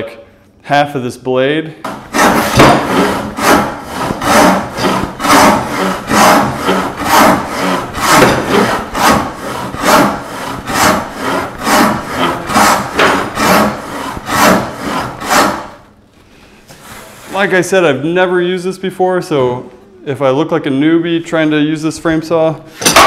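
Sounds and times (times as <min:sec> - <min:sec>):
hand saw rasping through wood: 0:01.9 - 0:15.8.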